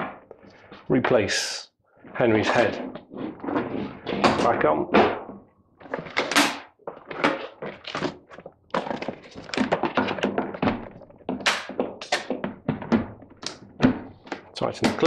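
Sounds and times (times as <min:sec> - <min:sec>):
hard plastic knocks and thunks: 0:08.8 - 0:15.0.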